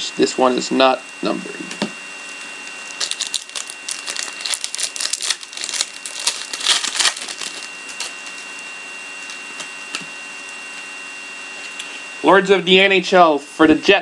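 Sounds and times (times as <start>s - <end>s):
wrapper crinkling: 2.3s - 10.0s.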